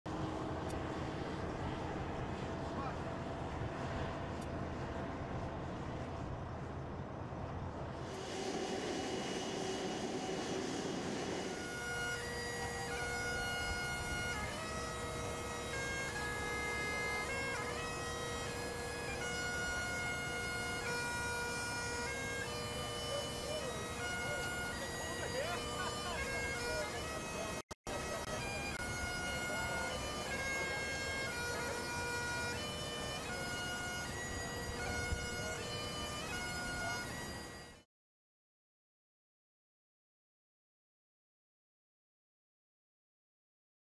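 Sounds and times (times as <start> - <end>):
aircraft engine: 0.1 - 37.9
bagpipes playing over drone: 7.9 - 37.9.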